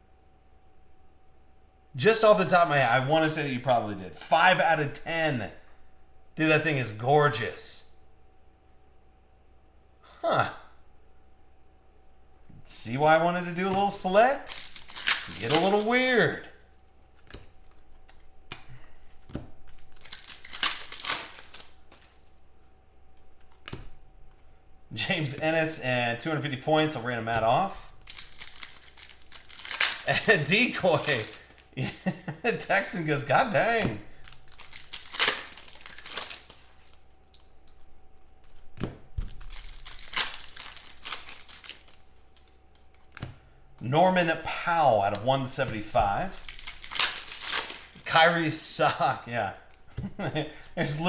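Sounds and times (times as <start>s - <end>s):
cards and foil wrapper crinkling: 13.4s - 22.4s, 26.2s - 32.0s, 32.6s - 43.2s, 45.6s - 49.0s.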